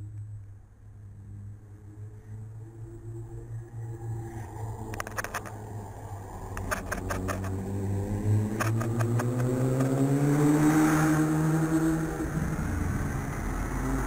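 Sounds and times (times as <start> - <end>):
vehicle engine passing: 0.0 - 14.0
sharp clicks: 8.5 - 9.9.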